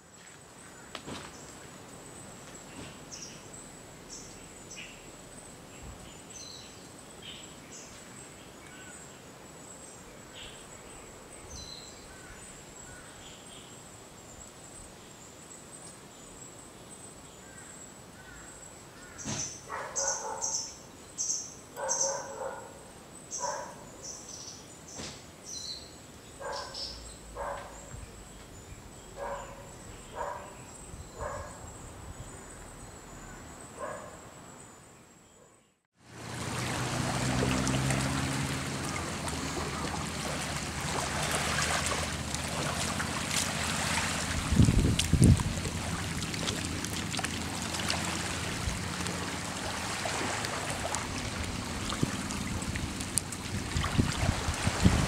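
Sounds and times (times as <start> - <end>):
steady outdoor hiss: 0.0 - 35.4, 36.0 - 55.0
birds calling: 18.2 - 25.7, 26.4 - 31.6, 36.6 - 44.9.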